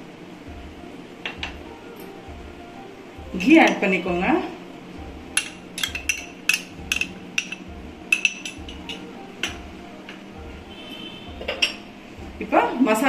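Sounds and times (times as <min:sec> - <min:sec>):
soft music with steady beat: 0:00.0 - 0:13.0
utensil clinking against metal pan: 0:05.4 - 0:09.6.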